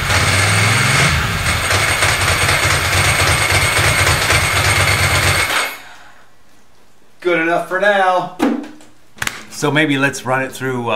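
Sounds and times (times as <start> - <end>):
motorcycle engine idling: 0.0 - 5.5.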